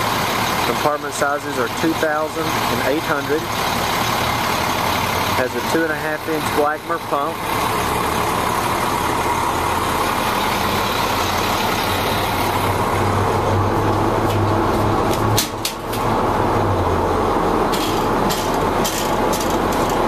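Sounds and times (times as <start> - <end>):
diesel truck engine idling: 0.0 - 20.0.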